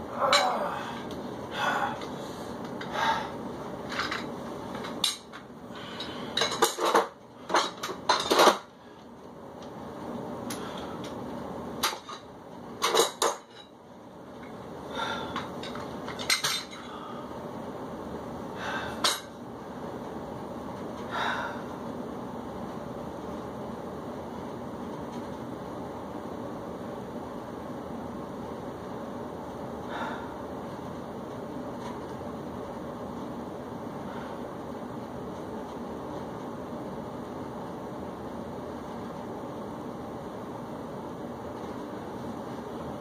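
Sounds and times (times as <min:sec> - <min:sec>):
person breathing: 0:00.5 - 0:03.5, 0:05.7 - 0:06.4, 0:14.8 - 0:15.5, 0:16.8 - 0:17.4, 0:18.5 - 0:19.2, 0:21.1 - 0:21.8, 0:29.8 - 0:30.5, 0:34.0 - 0:34.5.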